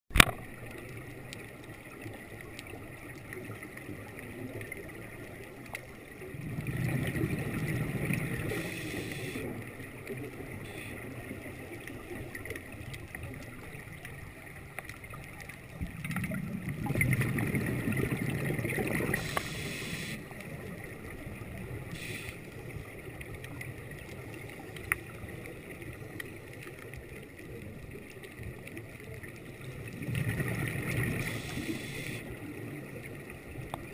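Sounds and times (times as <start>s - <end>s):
scuba exhaust bubbles: 0.1s - 33.9s
faint tick: 0.2s - 6.0s, 12.4s - 16.1s, 19.1s - 20.6s, 21.8s - 29.5s, 31.0s - 32.3s, 33.6s - 33.9s
underwater low hiss: 6.2s - 14.7s, 15.8s - 27.0s, 28.4s - 33.8s.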